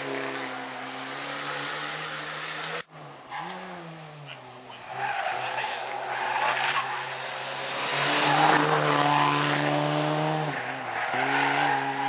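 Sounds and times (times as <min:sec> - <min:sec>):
rally car engine revving hard: 0:05.4 - 0:12.0.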